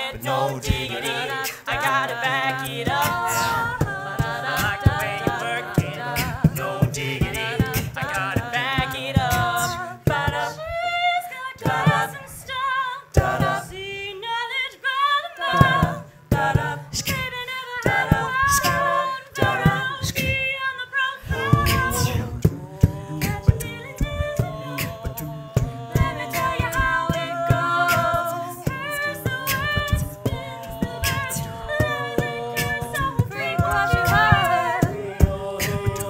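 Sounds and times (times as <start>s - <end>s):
a cappella group singing: 0.0s - 36.0s
vocal percussion clicks: 21.4s - 36.0s.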